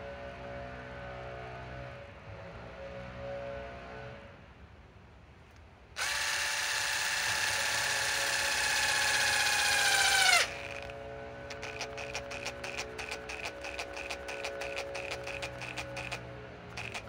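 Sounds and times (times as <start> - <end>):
impact driver motor whining: 6.0 - 17.0
impact driver hammering: 11.5 - 17.0.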